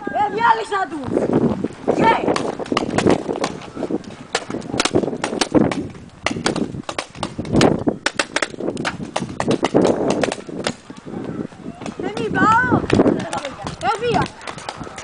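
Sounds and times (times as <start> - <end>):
paintball markers firing: 4.3 - 10.8.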